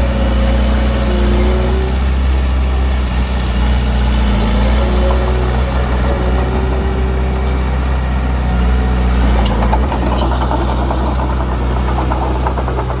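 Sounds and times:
diesel engine running: 0.0 - 13.0
high squeaks: 9.2 - 13.0
rapid metallic clicking: 9.4 - 13.0.

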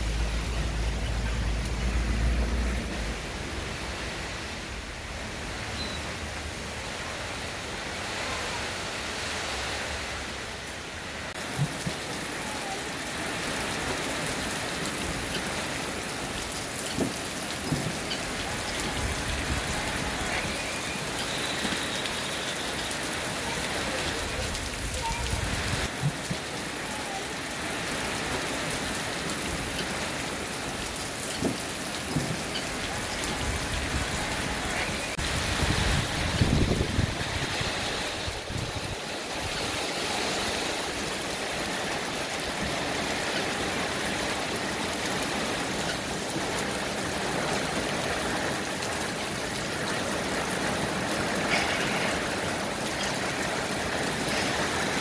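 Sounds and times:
rain falling on foliage: 0.0 - 55.0.

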